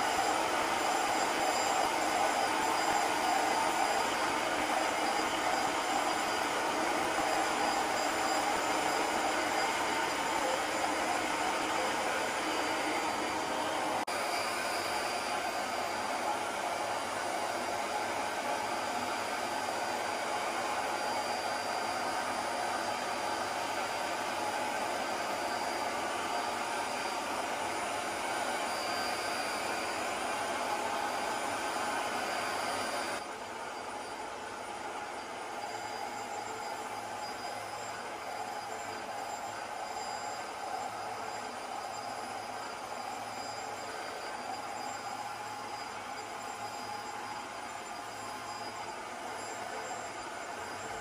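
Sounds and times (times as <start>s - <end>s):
carpet cleaner motor suction: 22.8s - 34.2s.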